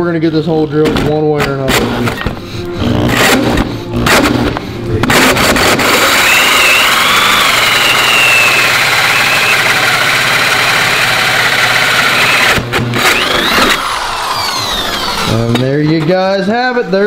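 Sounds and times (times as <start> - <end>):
power drill hole saw cutting wood: 2.7 - 15.6.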